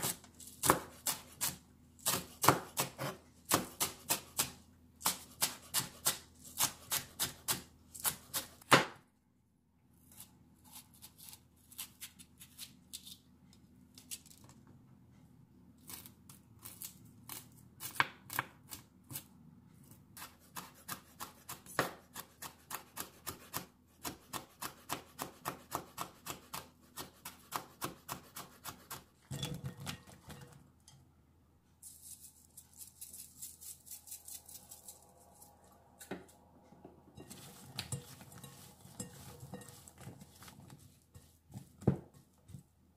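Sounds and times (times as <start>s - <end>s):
knife chopping on cutting board: 0.0s - 9.0s, 20.2s - 29.1s.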